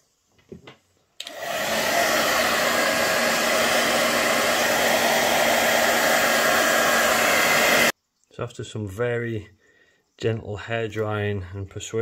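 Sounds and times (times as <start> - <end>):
hair dryer blowing air: 1.2 - 7.9.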